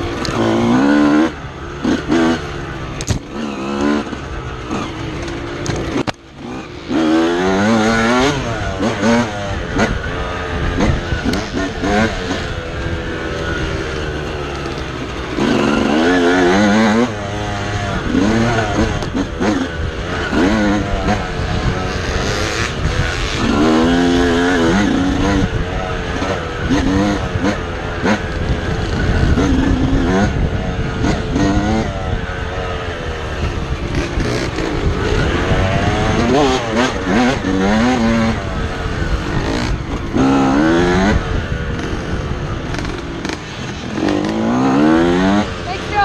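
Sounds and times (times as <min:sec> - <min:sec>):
dirt bike engine revving: 0:00.0 - 0:46.0
wind rumble: 0:00.0 - 0:46.0.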